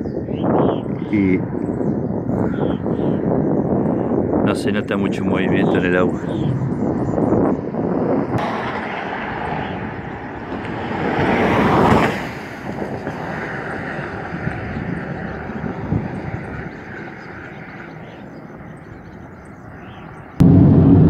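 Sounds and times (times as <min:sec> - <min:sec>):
steady low rumble: 0:01.0 - 0:11.0, 0:20.4 - 0:21.0
vehicle passing by: 0:06.1 - 0:14.9.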